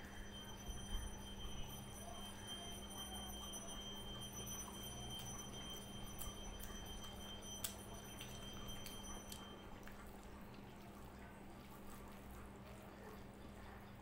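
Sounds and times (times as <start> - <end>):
faint high-pitched tone: 0.0 - 9.9
low steady hum: 0.0 - 14.0.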